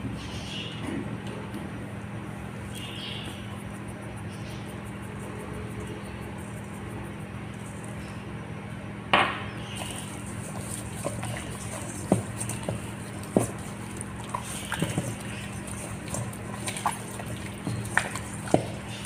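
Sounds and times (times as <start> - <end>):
wet squelches of rubbed chicken: 0.2 - 8.5, 9.6 - 19.0
liquid splashing into a bowl: 9.8 - 19.0.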